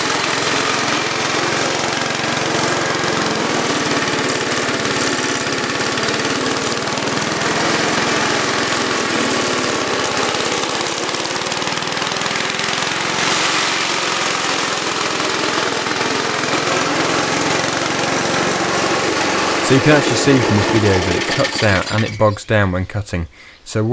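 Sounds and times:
lawn mower engine running: 0:00.0 - 0:22.2.

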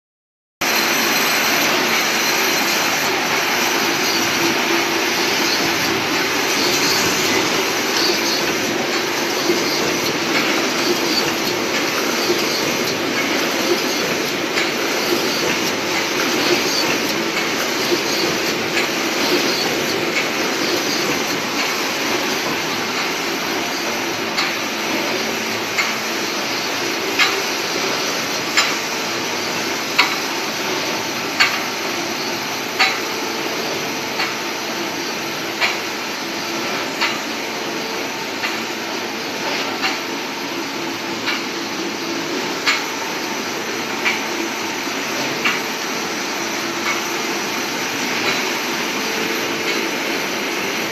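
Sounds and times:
welding machine humming: 0:00.7 - 0:32.0.

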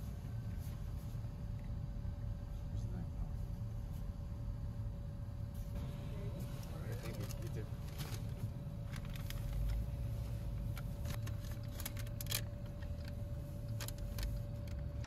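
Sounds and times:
car engine idling: 0:00.0 - 0:15.0
paper bag crinkling: 0:06.9 - 0:09.8, 0:10.8 - 0:13.1.

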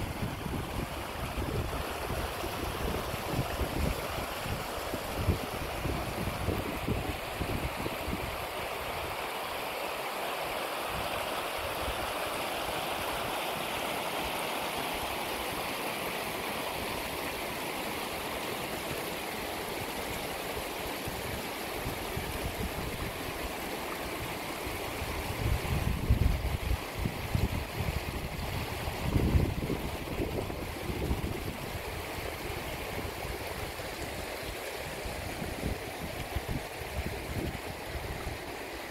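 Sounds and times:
wind buffeting microphone: 0:00.0 - 0:08.4, 0:25.0 - 0:33.8
stream babbling over stones: 0:00.0 - 0:38.9.

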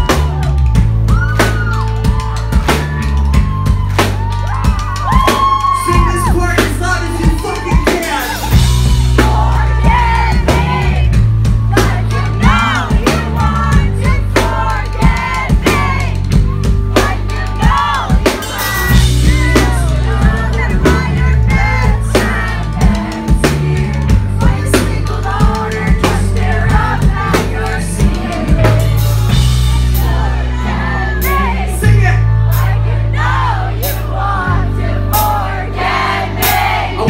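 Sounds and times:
drum kit beat: 0:00.0 - 0:37.0
heavy bass: 0:00.0 - 0:37.0
man singing: 0:05.8 - 0:08.6, 0:17.2 - 0:29.4, 0:30.6 - 0:32.4.

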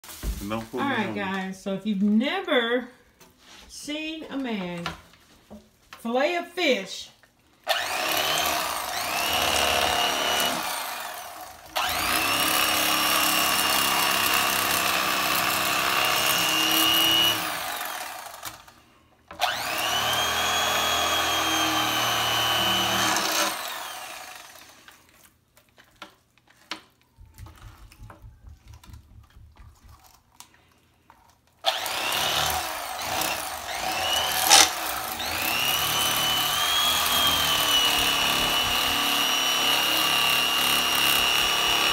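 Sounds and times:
electric fillet knife motor whining: 0:07.7 - 0:14.0, 0:19.4 - 0:24.8, 0:31.7 - 0:41.9
faint clicks and handling noise: 0:24.8 - 0:31.7.

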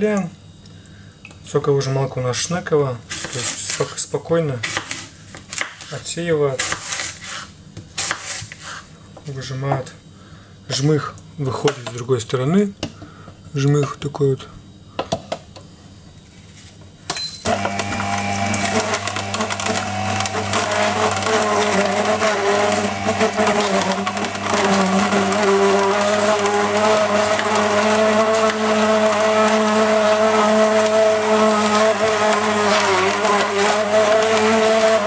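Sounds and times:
juicer motor humming: 0:17.4 - 0:35.0.

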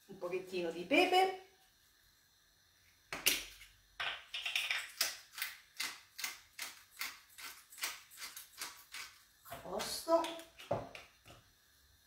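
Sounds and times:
pepper mill grinding: 0:04.3 - 0:11.1.

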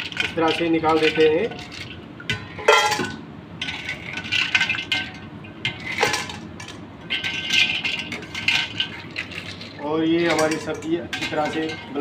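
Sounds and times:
metal clatter: 0:01.0 - 0:09.5, 0:10.2 - 0:12.0
ice clinking against steel: 0:10.2 - 0:12.0.

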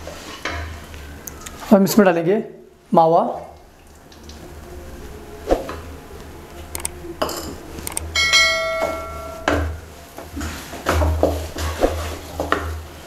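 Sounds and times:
wooden spatula scraping a pan: 0:00.0 - 0:00.8, 0:10.0 - 0:13.0
sharp clicks: 0:06.7 - 0:07.0, 0:07.8 - 0:08.1
bell-like chime: 0:08.1 - 0:09.6.

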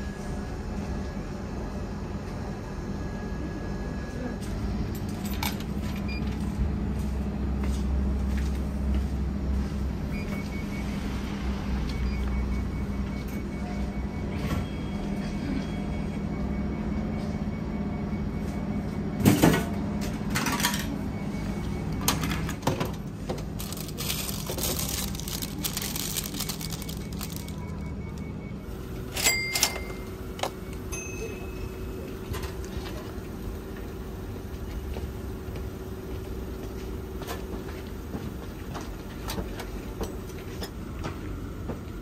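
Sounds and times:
vending machine humming: 0:00.0 - 0:42.0
plastic snack bag crinkling: 0:23.5 - 0:27.9.

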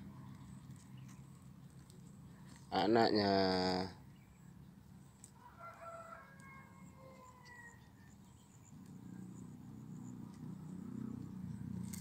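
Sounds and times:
faint rooster crowing: 0:05.3 - 0:08.3.

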